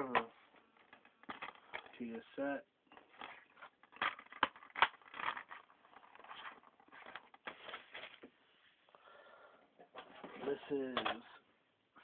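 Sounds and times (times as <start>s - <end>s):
plastic cases clacking: 0.0s - 2.0s, 2.9s - 8.3s, 9.9s - 11.4s
plastic cases rustling and clicking: 0.1s - 2.1s, 2.9s - 8.3s.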